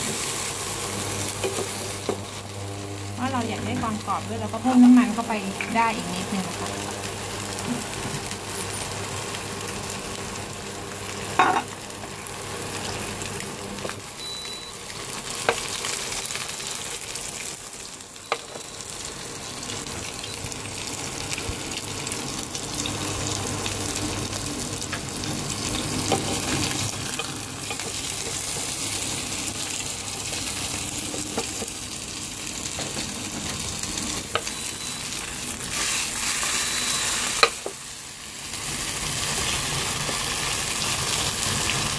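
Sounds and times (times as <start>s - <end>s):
batter sizzling in oil: 0.0s - 41.9s.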